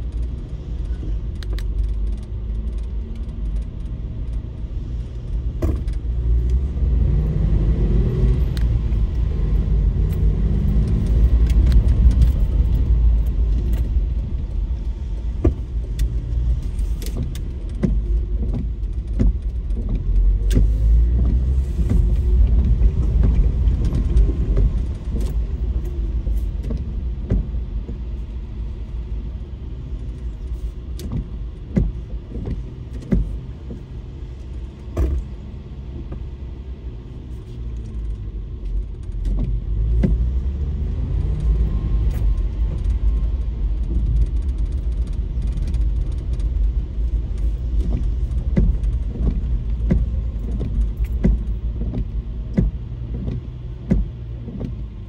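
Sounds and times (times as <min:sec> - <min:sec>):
car engine and road noise: 0:00.0 - 0:55.0
light clicks and knocks: 0:30.0 - 0:36.4, 0:37.5 - 0:55.0.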